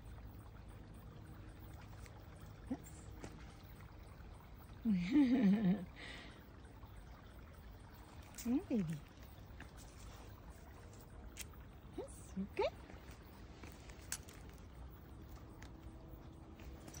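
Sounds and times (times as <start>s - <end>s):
faint outdoor hiss: 0.0s - 17.0s.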